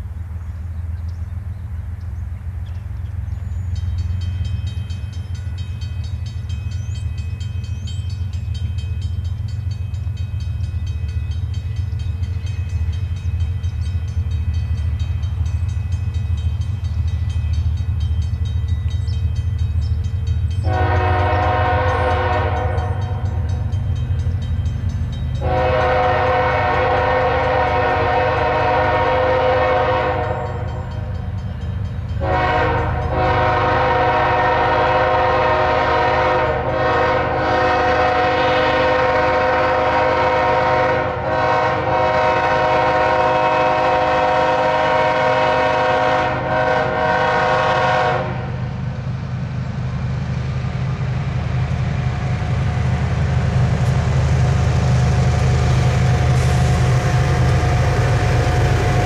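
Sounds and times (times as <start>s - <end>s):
train rumbling: 0.0s - 59.0s
locomotive air horn blasts: 20.6s - 23.5s, 25.4s - 30.7s, 32.2s - 48.6s.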